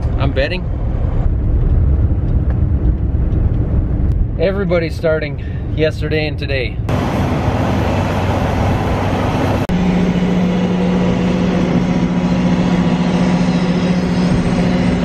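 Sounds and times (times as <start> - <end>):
vehicle and road noise: 0.0 - 15.0
combine harvester engine drone: 6.7 - 15.0.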